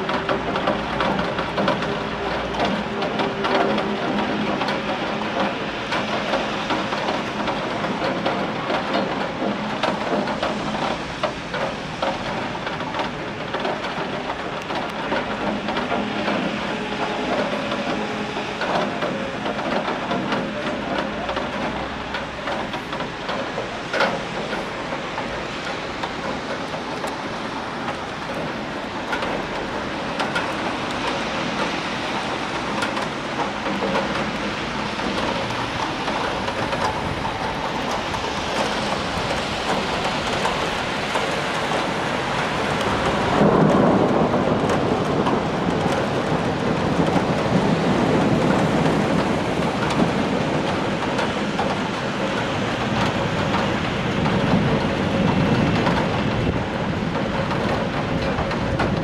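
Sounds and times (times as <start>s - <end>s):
rain falling: 0.0s - 59.0s
thunder rumbling: 24.4s - 59.0s.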